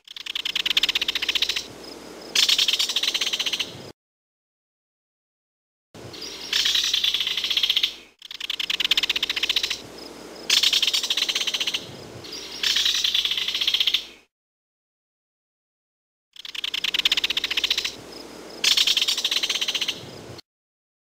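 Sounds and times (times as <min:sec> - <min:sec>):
kingfisher rattling call: 0:00.0 - 0:01.7, 0:02.3 - 0:03.7, 0:06.2 - 0:09.9, 0:10.5 - 0:14.0, 0:16.4 - 0:18.0, 0:18.6 - 0:20.0.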